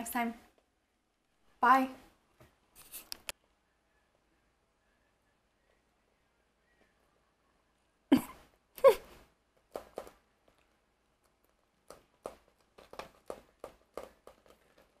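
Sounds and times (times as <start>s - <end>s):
person laughing: 8.1s - 9.2s.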